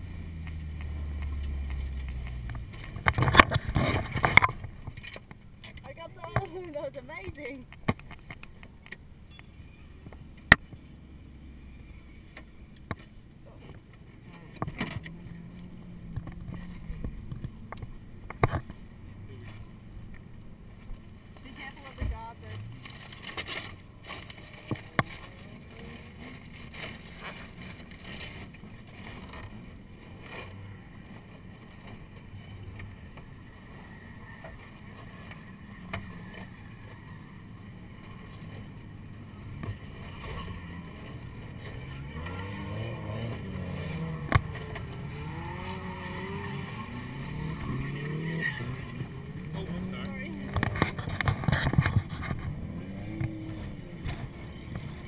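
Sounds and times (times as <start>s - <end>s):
car engines droning and revving: 0.0s - 55.0s.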